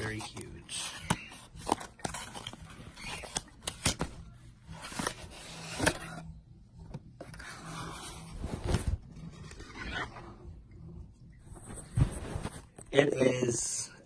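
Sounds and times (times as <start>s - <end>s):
cardboard scraping and sliding: 7.4s - 10.3s.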